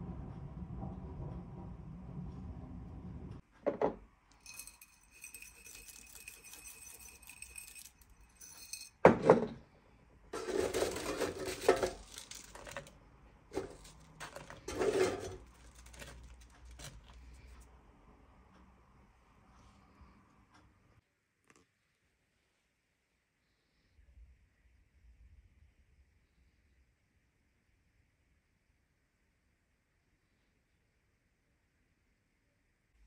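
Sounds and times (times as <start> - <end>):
dishes and utensils clinking: 4.4 - 9.5, 10.4 - 12.9, 13.6 - 17.2
scraping and rustling: 10.4 - 17.6.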